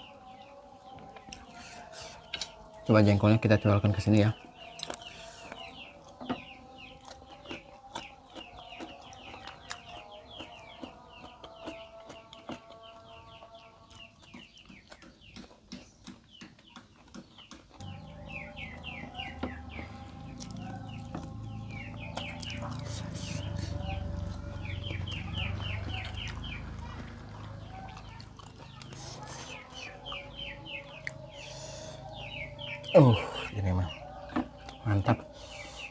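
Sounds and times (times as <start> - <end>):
chicks peeping: 0.0 - 35.9
low hum: 17.8 - 27.6.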